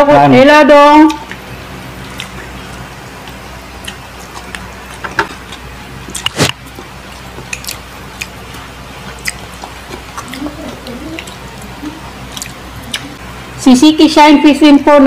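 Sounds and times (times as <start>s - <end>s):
steady low hum: 0.0s - 15.0s
wet clicks and smacks: 1.1s - 11.7s, 12.3s - 13.2s
people chewing: 1.1s - 13.4s.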